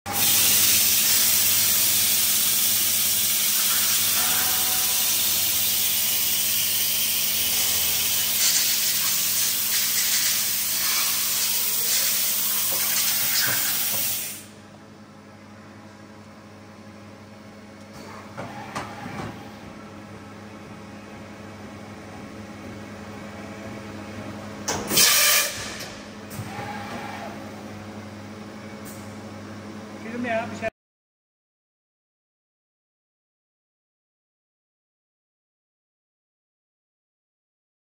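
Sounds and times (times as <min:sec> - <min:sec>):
compressed air hissing: 0:00.1 - 0:04.2, 0:08.1 - 0:14.5.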